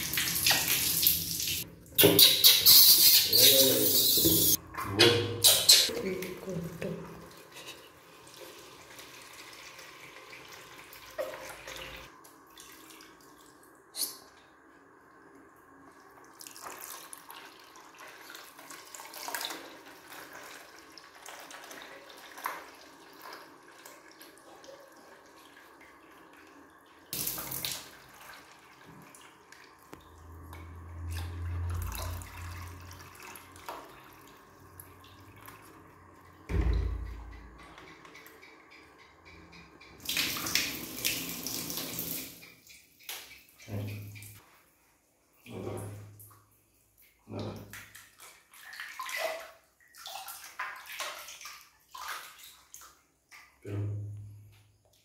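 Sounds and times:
tap water pouring into bucket: 0.0s - 1.7s, 7.2s - 14.4s, 15.2s - 38.3s, 39.3s - 44.5s
water splashes: 45.4s - 53.9s.

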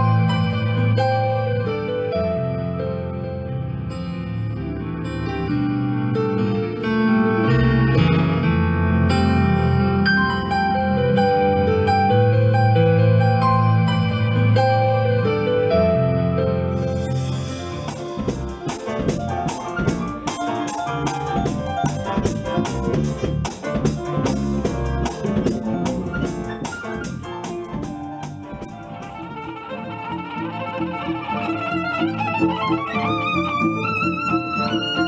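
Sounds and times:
drum-kit beat with cymbals: 17.5s - 29.2s
violin with vibrato: 27.8s - 35.0s.

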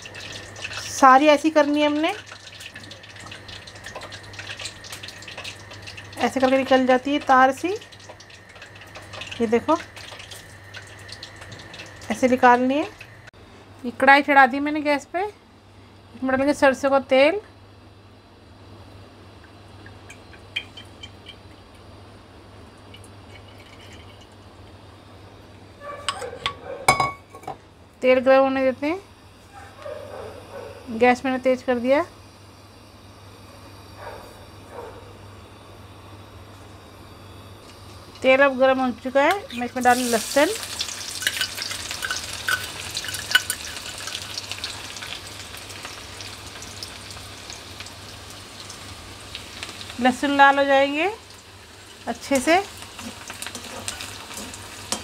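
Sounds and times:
garlic sizzling in hot oil: 0.0s - 13.3s, 36.9s - 55.0s
low steady hum: 0.0s - 55.0s
oil pouring into a pan: 2.2s - 6.2s.

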